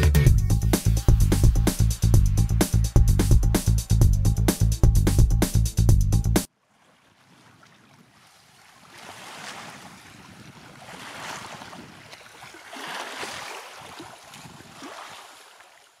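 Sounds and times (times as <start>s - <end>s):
waves washing against shore: 8.1s - 15.4s.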